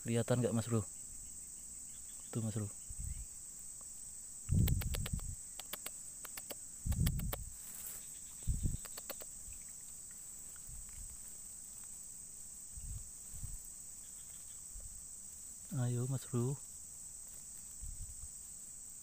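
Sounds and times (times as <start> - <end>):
insects chirring: 0.0 - 19.0
sharp clicks: 4.5 - 7.5, 8.7 - 9.4.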